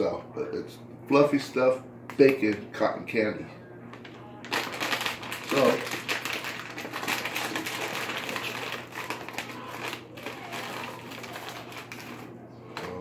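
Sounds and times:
snack bag crinkling: 0:03.9 - 0:13.0.

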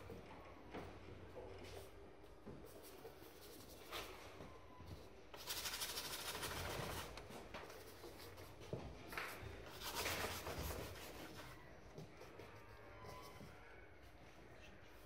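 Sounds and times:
paintbrush scratching on palette: 0:02.7 - 0:04.2, 0:04.9 - 0:08.6, 0:09.7 - 0:15.0.

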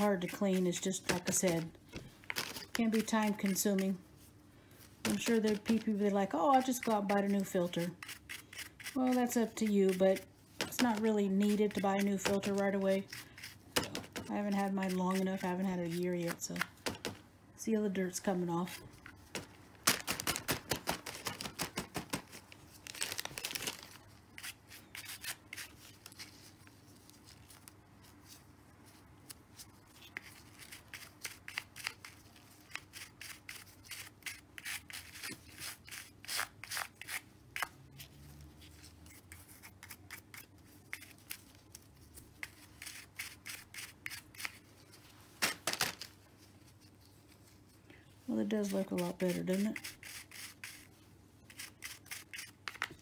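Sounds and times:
toothbrush scrubbing a filter: 0:05.2 - 0:13.6.

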